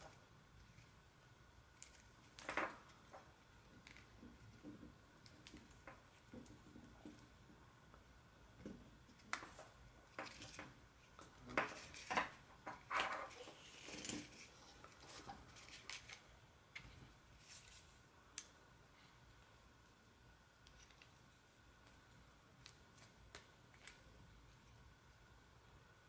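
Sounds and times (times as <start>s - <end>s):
rubber cord rubbing and rustling: 8.6s - 18.1s.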